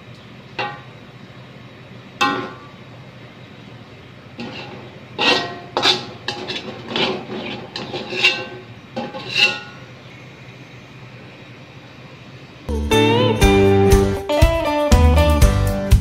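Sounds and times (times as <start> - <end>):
wok ringing: 0.0 - 1.4, 2.2 - 3.0, 4.3 - 10.5
metal spatula scraping a wok: 4.4 - 10.0.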